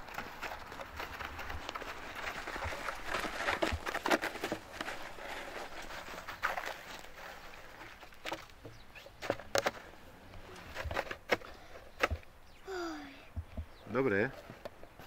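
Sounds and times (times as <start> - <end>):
footsteps in wet snow: 0.0 - 9.4.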